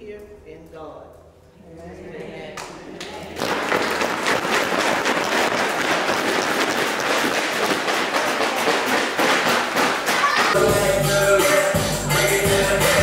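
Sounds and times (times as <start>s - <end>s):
crowd applauding: 3.0s - 10.6s.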